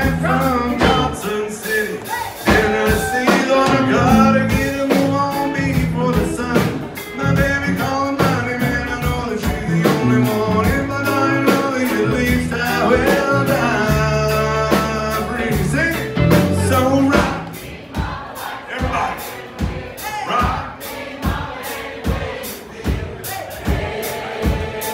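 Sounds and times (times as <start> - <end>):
person singing: 0.0 - 17.5
live country band playing: 0.0 - 24.9.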